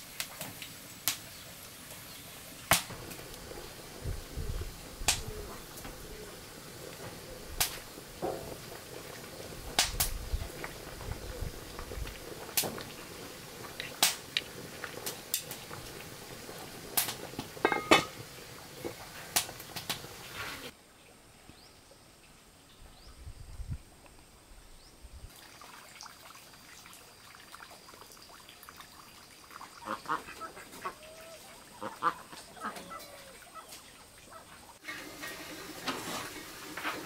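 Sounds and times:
steady hiss: 0.0s - 37.0s
metal pot lid clinking: 17.6s - 18.2s.

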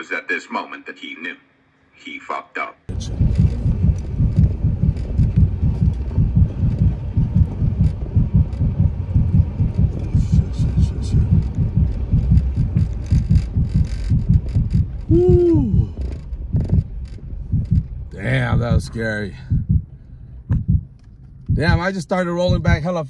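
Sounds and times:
pickup truck thumping and rumbling: 2.9s - 18.9s.

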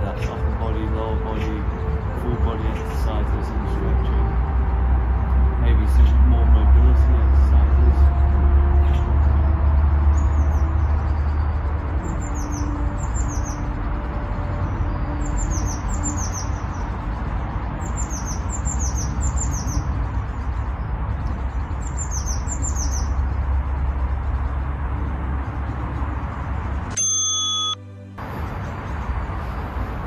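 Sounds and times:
low rumble: 0.0s - 26.9s
small bird chirping: 21.3s - 23.3s.

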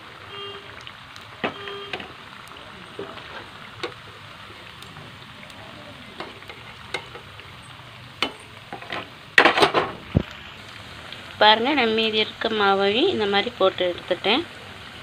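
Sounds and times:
hot oil sizzling and popping: 0.0s - 15.0s
spatula clattering in pan: 6.2s - 7.3s, 8.2s - 9.9s.

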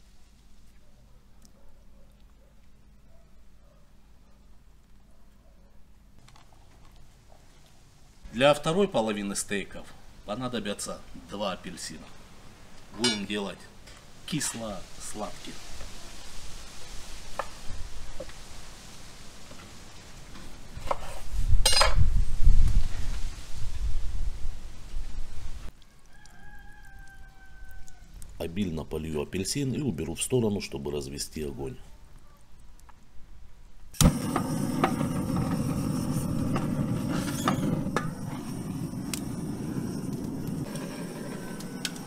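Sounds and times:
charcoal cracking and popping: 32.1s - 33.1s, 33.9s - 42.0s
gas torch roaring: 34.0s - 42.0s.

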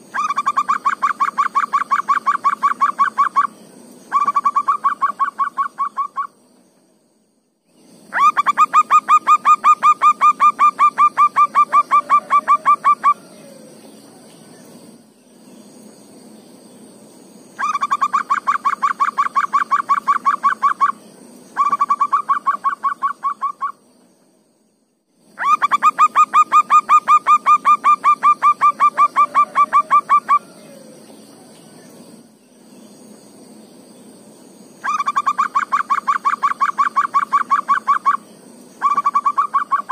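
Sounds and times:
doves cooing: 8.1s - 14.4s, 25.4s - 31.7s.

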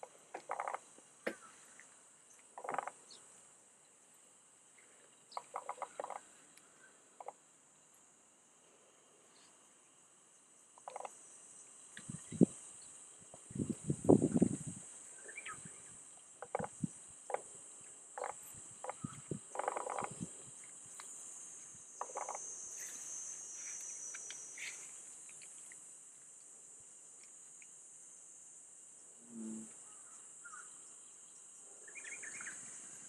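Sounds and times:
lower insect buzz: 0.0s - 33.0s
high-pitched insect drone: 10.8s - 25.8s.

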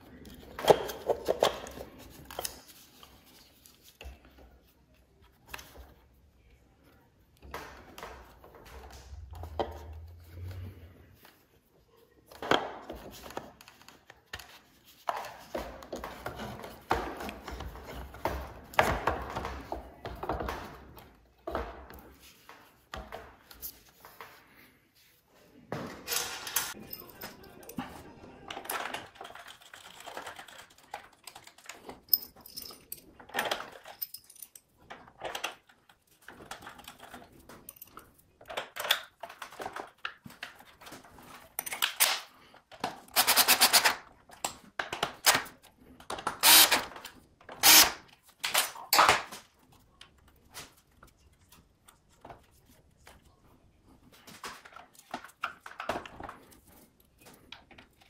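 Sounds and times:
parts clicking and knocking: 28.5s - 50.2s
cordless drill driving screws: 46.4s - 46.9s, 47.6s - 48.0s.

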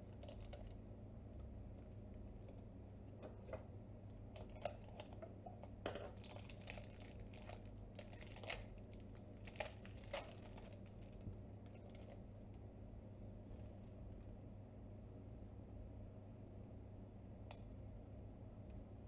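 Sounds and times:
plastic wrapping crinkling: 4.4s - 12.2s.

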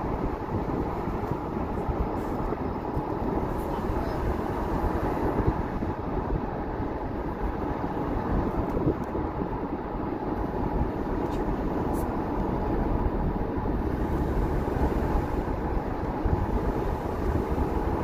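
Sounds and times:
car engine running: 0.0s - 18.0s
tyres on the road: 0.0s - 18.0s.

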